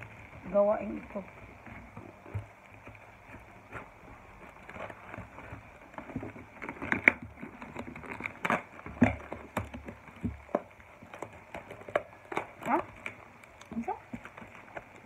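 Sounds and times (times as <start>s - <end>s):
wrapping rustling: 0.0s - 15.0s
cardboard box tearing: 1.5s - 15.0s.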